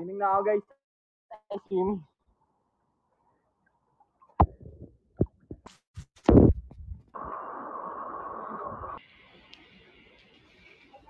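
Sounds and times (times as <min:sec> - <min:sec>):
steady hiss: 0:07.2 - 0:11.0.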